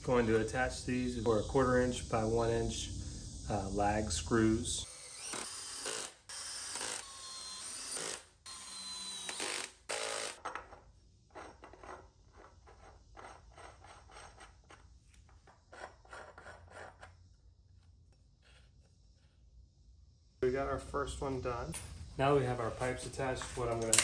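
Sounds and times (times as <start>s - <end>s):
cordless drill driving screws: 4.9s - 10.4s.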